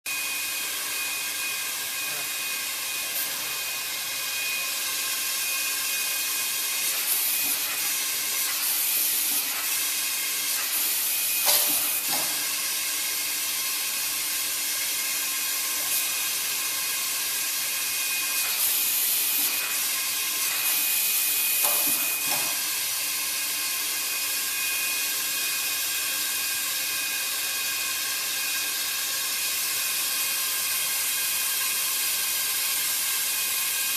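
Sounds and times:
hot air heater hissing: 0.1 - 26.3.

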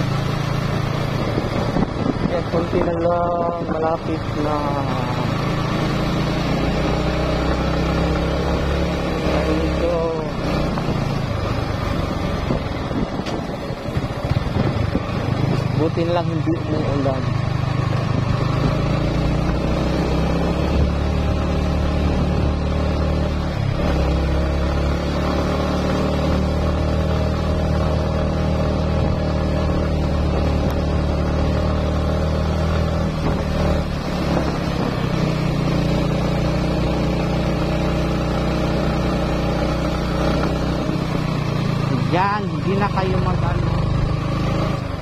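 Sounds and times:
motorcycle engine climbing: 0.0 - 45.0.

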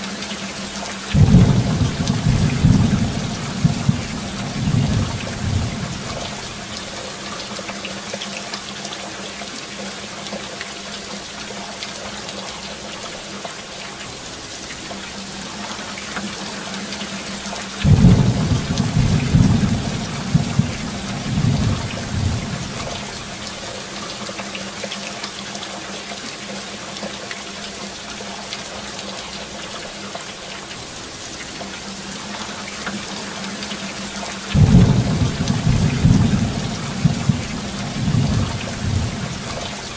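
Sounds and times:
rain hiss: 0.0 - 39.9
thunder rumble: 1.1 - 6.7, 17.8 - 23.5, 34.5 - 39.9.

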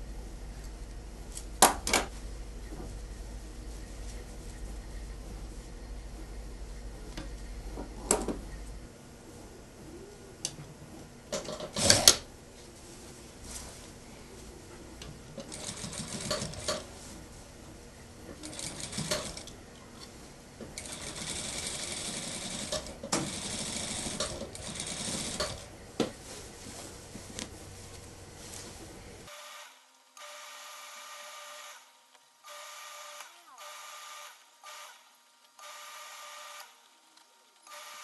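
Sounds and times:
sewing machine stitching: 11.4 - 12.2, 15.4 - 16.9, 18.3 - 19.6, 20.8 - 25.7.

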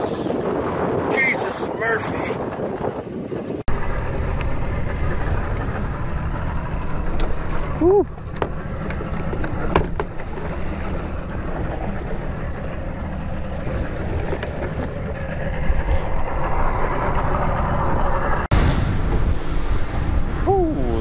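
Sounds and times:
water slapping boat hull: 0.0 - 20.4
boat engine rumble: 0.0 - 21.0
wind buffeting microphone: 0.0 - 21.0.

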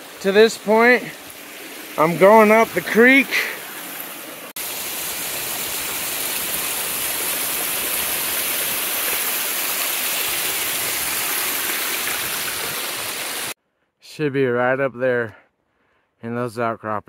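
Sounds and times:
water cascading over rocks: 0.0 - 13.6.

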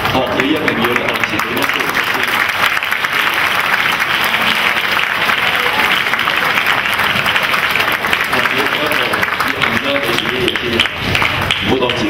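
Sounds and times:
audience clapping: 0.0 - 12.0.

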